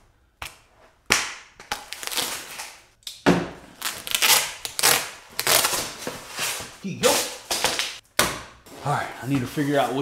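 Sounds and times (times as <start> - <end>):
tubes scraping and rustling: 5.5 - 7.7, 8.6 - 10.0.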